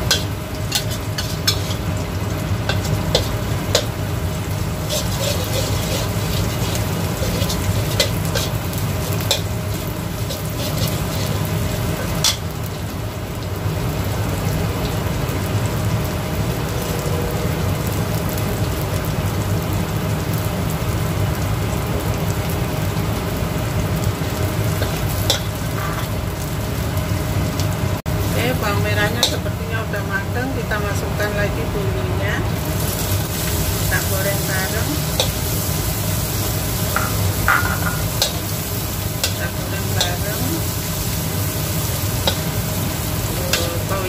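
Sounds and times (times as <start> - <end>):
extractor fan hum: 0.0 - 16.7, 17.5 - 44.0
food sizzling in hot oil: 0.0 - 44.0
spatula scraping a pan: 0.1 - 1.9, 4.8 - 9.5, 10.2 - 12.4, 24.8 - 26.2, 36.9 - 38.6.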